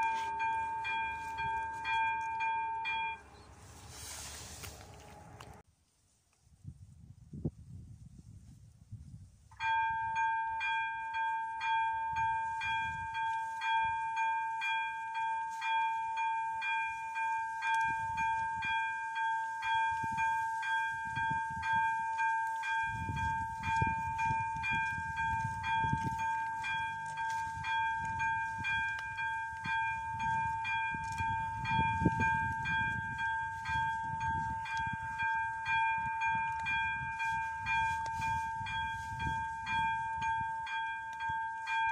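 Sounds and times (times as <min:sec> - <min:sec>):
electronic level crossing bell: 0:00.0 - 0:04.7, 0:09.6 - 0:41.9.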